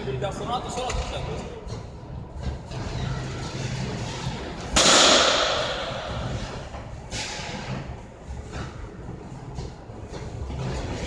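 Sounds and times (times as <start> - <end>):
baseball bat crack: 4.7 - 6.4.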